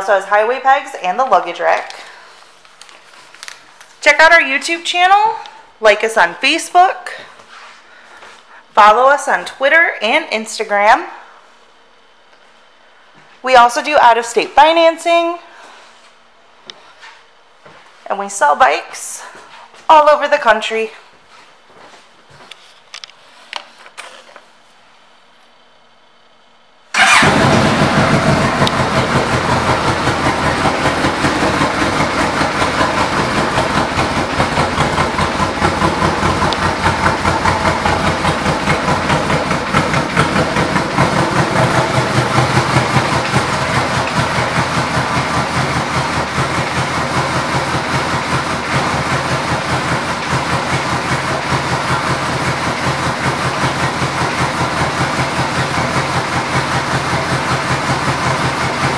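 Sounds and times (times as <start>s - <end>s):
motorcycle engine idling: 26.9s - 58.9s.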